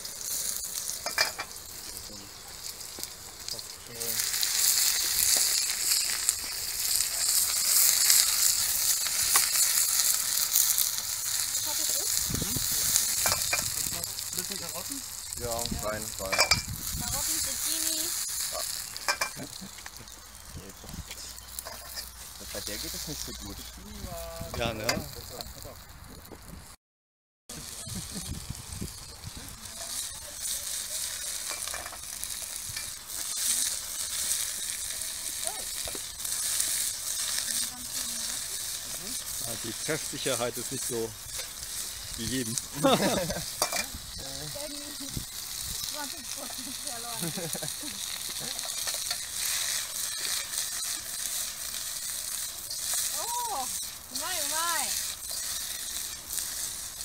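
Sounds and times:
metal spatula stirring in wok: 0.0 - 1.6, 28.4 - 54.2, 54.9 - 57.0
vegetables sizzling in a wok: 0.0 - 26.6, 27.5 - 57.0.

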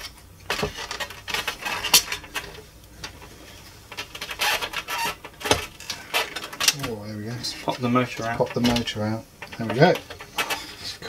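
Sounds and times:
plastic parts scraping and clicking: 0.0 - 11.0.

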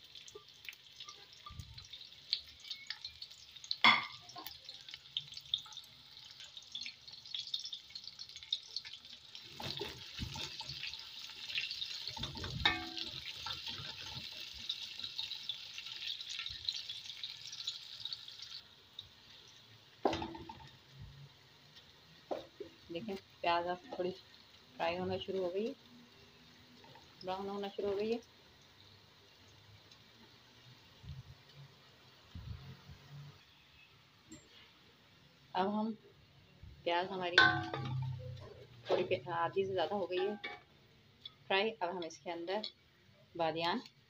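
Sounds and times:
onions sizzling in oil: 0.0 - 44.0
spoon knocking against pot: 37.4 - 38.1.

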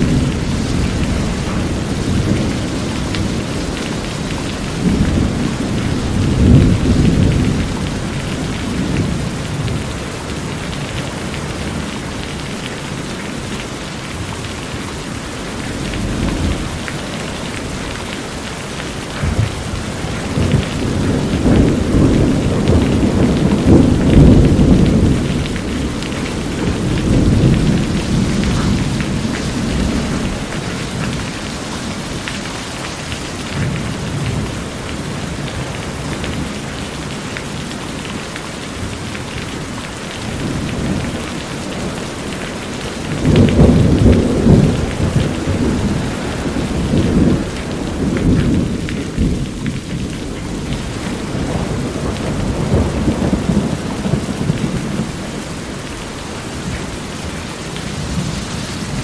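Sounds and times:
thunder rumbling: 0.0 - 37.6, 40.2 - 59.0
heavy rain on metal roof: 0.0 - 59.0.

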